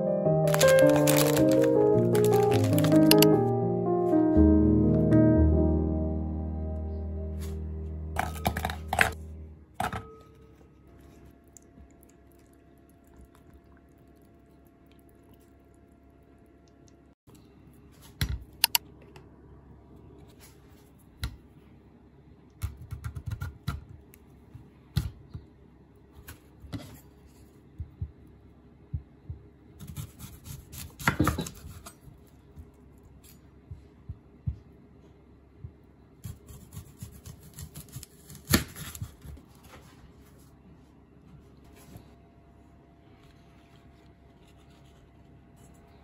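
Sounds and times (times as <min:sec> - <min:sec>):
objects clicking and knocking: 0:00.5 - 0:03.4, 0:08.2 - 0:09.2.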